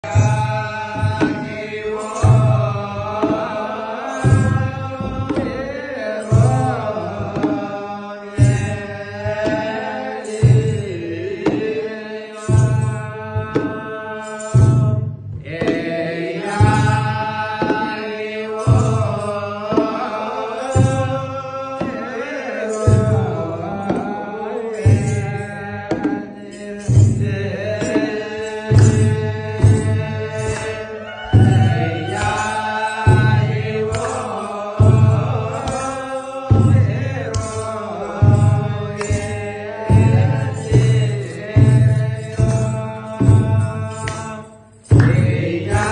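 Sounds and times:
drums beating slow rhythm: 0:00.0 - 0:45.9
men chanting in unison: 0:00.0 - 0:45.9.

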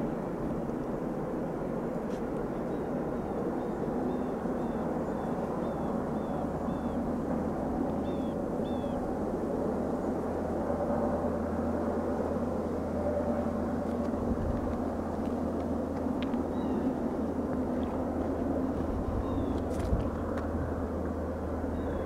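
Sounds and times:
freight train rumbling: 0:12.3 - 0:22.0.

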